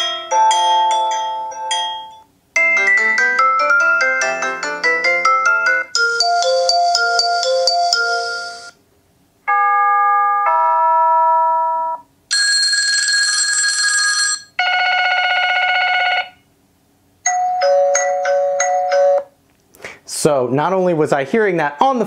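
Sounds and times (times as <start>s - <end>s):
electronic chimes and ring tones: 0.0s - 8.8s.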